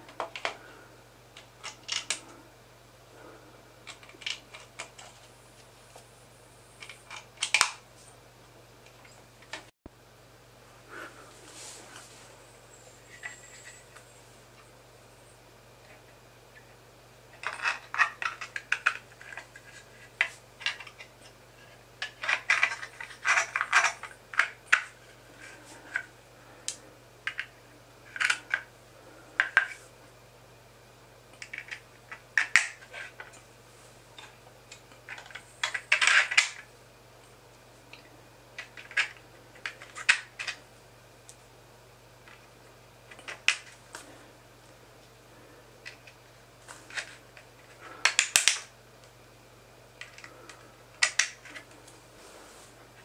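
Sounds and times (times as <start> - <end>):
plastic parts clicking and clattering: 0.1 - 0.6, 1.4 - 2.3, 3.8 - 5.3, 6.8 - 7.8, 17.3 - 28.7, 31.4 - 33.4, 34.2 - 36.7, 37.9 - 40.6, 43.1 - 43.8, 45.8 - 48.7, 50.0 - 52.0.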